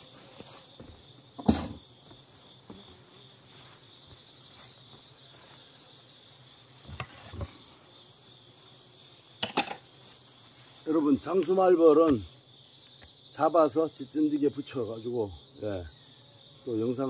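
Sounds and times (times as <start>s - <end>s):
crickets chirring: 0.0s - 17.0s.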